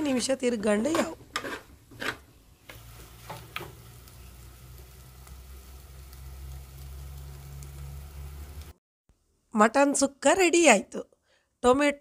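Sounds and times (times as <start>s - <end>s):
meat sizzling in a pot: 0.0s - 8.8s.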